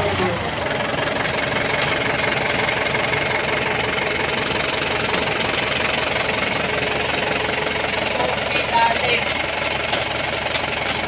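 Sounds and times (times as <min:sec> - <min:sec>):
tractor diesel engine idling: 0:00.0 - 0:11.0.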